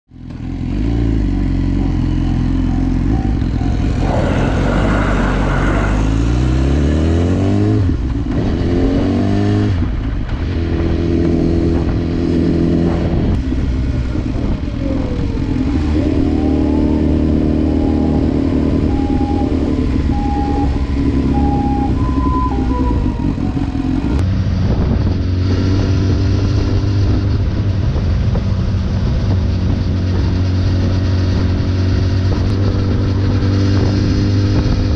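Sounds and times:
motorcycle engine accelerating: 0.1 - 34.9
wind rushing past: 3.6 - 8.0.

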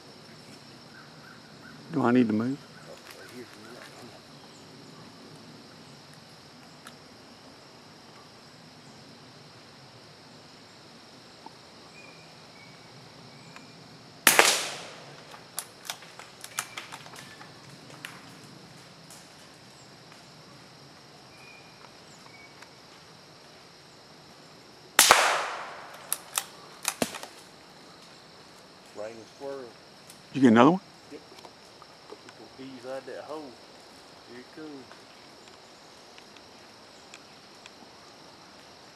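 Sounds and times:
rifle shots with echo: 14.3 - 15.3, 25.0 - 27.2.

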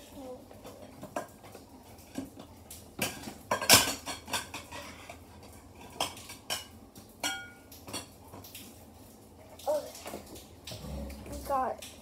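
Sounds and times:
dishes and cutlery clattering: 0.5 - 8.6.

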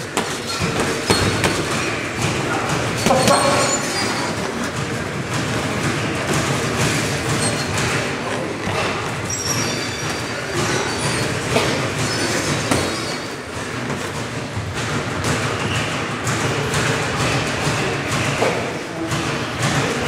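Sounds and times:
noisy gym din: 0.0 - 20.0
short high squeaks: 9.2 - 13.3.

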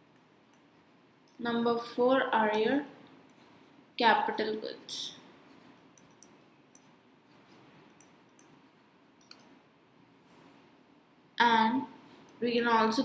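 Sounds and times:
stylus tapping pen tablet: 5.6 - 9.6.

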